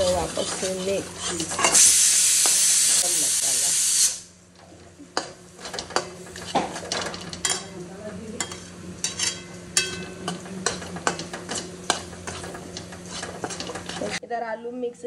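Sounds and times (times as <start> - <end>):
steel spoon scraping metal pan: 0.0 - 3.3, 8.4 - 14.2
paste sizzling in oil: 0.0 - 4.2.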